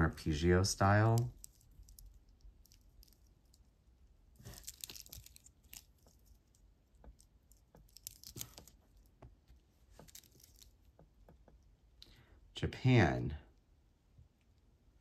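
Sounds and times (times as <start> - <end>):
bracelet clicks and rustling: 1.0 - 3.7, 4.4 - 9.1, 9.8 - 11.6.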